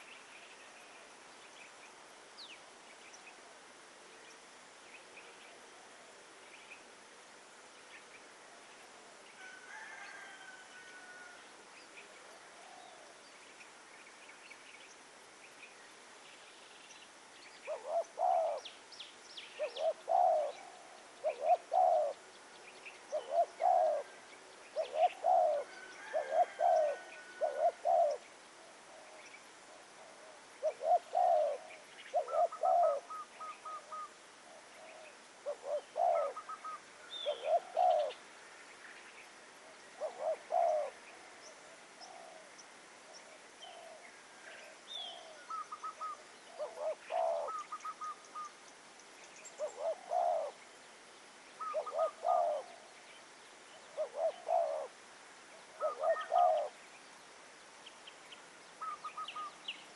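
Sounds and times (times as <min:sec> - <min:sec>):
dove cooing: 0:17.7 - 0:18.7, 0:19.6 - 0:22.3, 0:23.1 - 0:38.2, 0:39.6 - 0:42.5, 0:43.1 - 0:48.6, 0:49.6 - 0:50.6, 0:51.6 - 0:52.9, 0:53.9 - 0:55.0, 0:55.6 - 0:56.8, 0:58.8 - 0:59.6.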